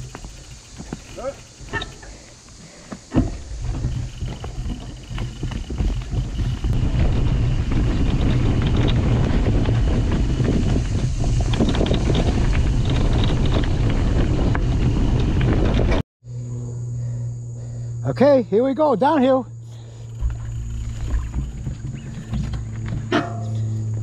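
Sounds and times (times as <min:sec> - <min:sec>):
tyres rattling on dirt: 0:00.0 - 0:15.9, 0:20.0 - 0:23.7
wind buffeting microphone: 0:03.2 - 0:16.0.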